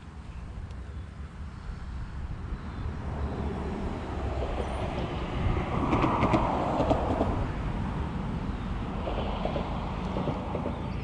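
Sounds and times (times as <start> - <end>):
wind rumble on microphone: 0.1 - 11.0.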